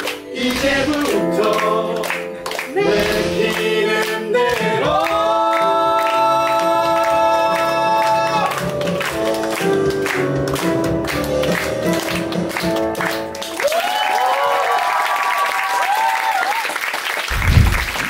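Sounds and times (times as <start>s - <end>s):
voices singing a held note: 2.7s - 8.8s
instrumental backing track: 7.6s - 13.6s.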